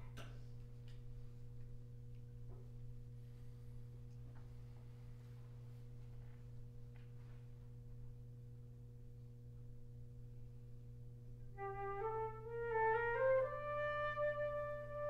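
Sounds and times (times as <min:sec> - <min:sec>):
steady low hum: 0:00.0 - 0:15.0
small shuffles: 0:04.2 - 0:08.0.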